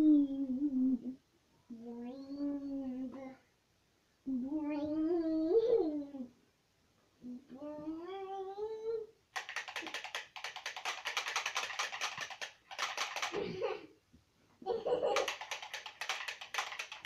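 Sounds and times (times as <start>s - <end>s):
rapid rattle of clicks: 9.4s - 13.4s, 15.1s - 17.0s.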